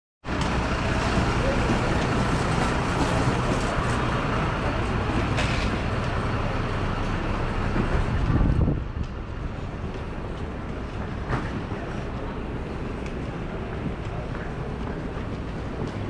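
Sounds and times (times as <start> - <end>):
engine rumbling: 0.2 - 16.0
faint voices: 0.7 - 5.4, 10.8 - 16.0.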